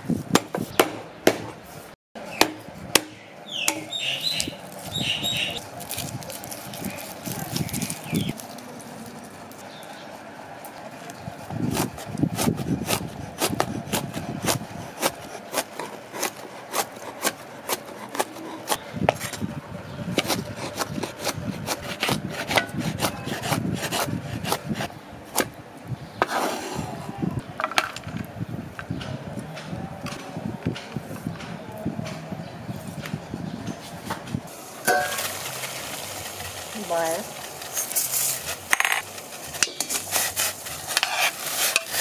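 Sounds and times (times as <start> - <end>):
knife chopping on wooden board: 2.4 - 3.9, 11.7 - 19.4
knife scraping across board: 26.2 - 27.0, 37.7 - 42.0.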